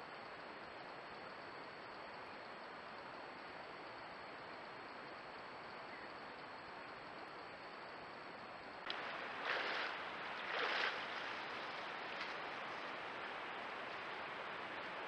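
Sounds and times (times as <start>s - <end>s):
steady hiss: 0.0s - 15.0s
bear splashing in water: 8.9s - 14.6s.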